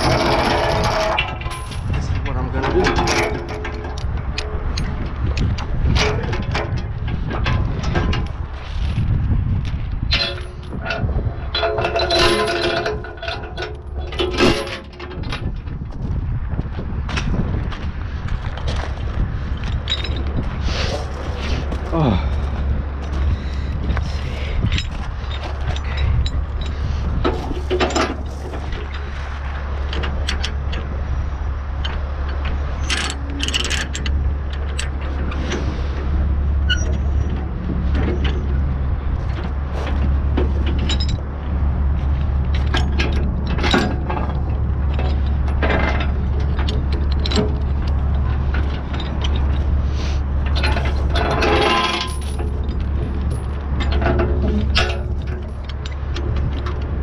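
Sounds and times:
steel chains clanking: 0.0s - 9.0s, 10.1s - 15.7s, 19.5s - 57.0s.

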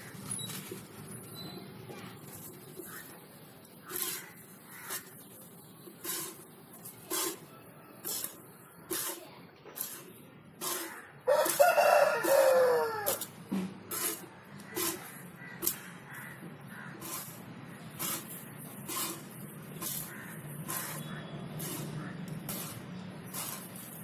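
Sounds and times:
milk squirting: 5.9s - 9.2s, 17.0s - 24.0s
rooster crowing: 11.3s - 13.3s.

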